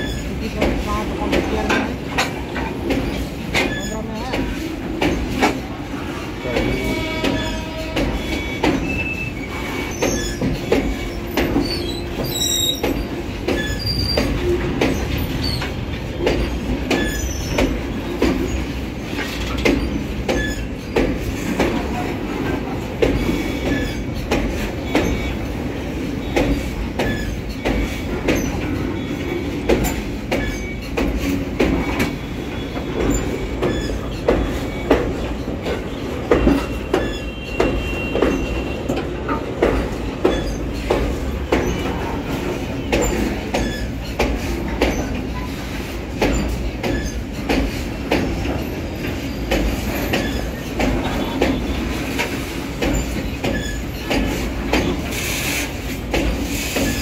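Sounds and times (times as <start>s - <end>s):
train wheels rumbling on rails: 0.0s - 57.0s
wheels clacking over rail joints: 0.0s - 57.0s
high wheel squeals: 6.1s - 15.8s, 26.2s - 38.9s.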